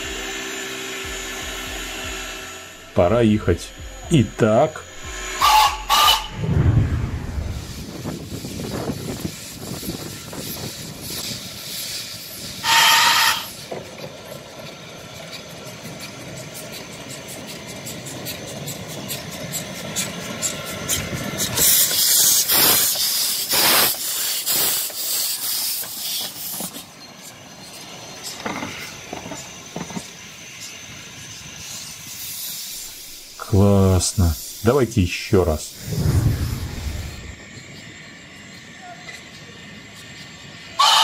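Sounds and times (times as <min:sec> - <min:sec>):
locomotive exhaust chuffs: 0:00.0 - 0:41.0
steam hissing: 0:00.0 - 0:41.0
steam locomotive whistle blast: 0:04.8 - 0:07.8, 0:12.3 - 0:13.6, 0:40.6 - 0:41.0.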